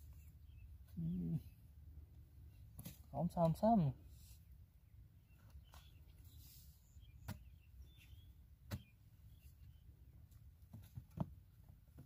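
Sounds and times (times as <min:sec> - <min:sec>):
digging tool knocking dry mud: 0:07.2 - 0:07.5, 0:08.6 - 0:08.9.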